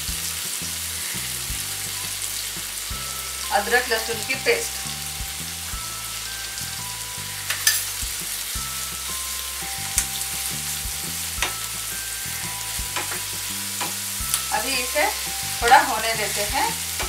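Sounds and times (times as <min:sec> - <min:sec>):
vegetables sizzling in oil: 0:00.0 - 0:17.0
spatula knocking and scraping pan: 0:11.4 - 0:12.0, 0:12.8 - 0:14.4.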